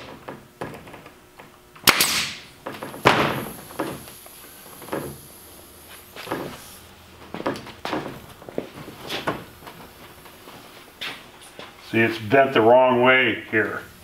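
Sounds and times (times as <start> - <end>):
nail gun shots: 1.8 - 3.5.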